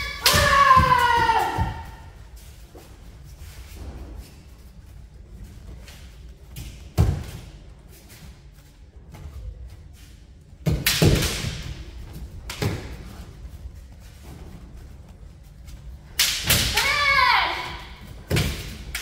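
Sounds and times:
bamboo sword strikes: 0:16.2 - 0:17.0.

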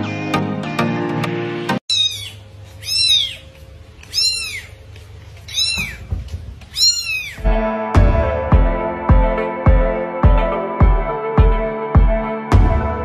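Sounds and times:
background music: 0:00.0 - 0:01.8, 0:07.4 - 0:13.0
cat meowing: 0:01.9 - 0:04.8, 0:05.4 - 0:07.5.

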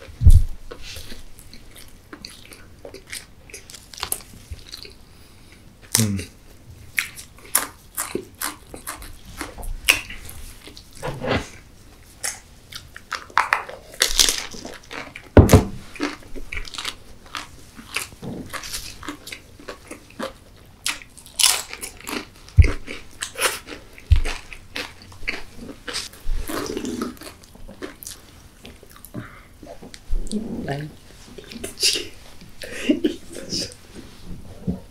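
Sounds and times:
crunchy chewing and biting: 0:00.2 - 0:05.0, 0:05.9 - 0:11.6, 0:12.2 - 0:29.1.

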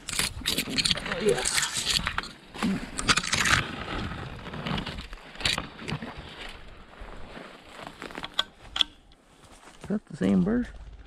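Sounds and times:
branches snapping: 0:00.0 - 0:06.6, 0:07.7 - 0:09.2
branches brushing and scraping: 0:00.0 - 0:11.0
footsteps in undergrowth: 0:03.7 - 0:11.0.

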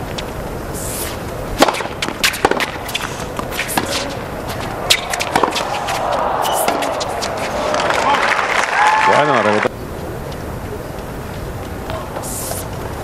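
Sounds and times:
shoe scuffs: 0:00.8 - 0:07.7, 0:12.2 - 0:12.7
tennis ball hits and bounces: 0:01.0 - 0:07.8
crowd murmur: 0:02.8 - 0:13.0.

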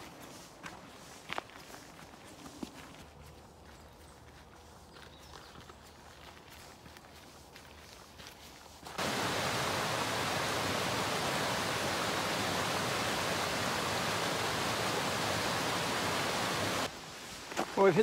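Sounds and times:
footsteps on dry leaves: 0:00.0 - 0:09.0, 0:16.9 - 0:18.0
small waterfall rushing: 0:08.9 - 0:16.9.

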